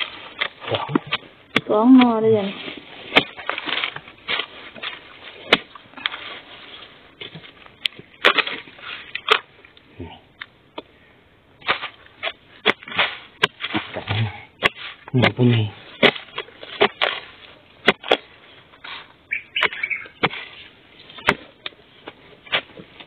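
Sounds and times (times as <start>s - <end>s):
dry leaves crackling: 1.7s - 9.4s
spade chopping into soil: 21.2s - 21.5s.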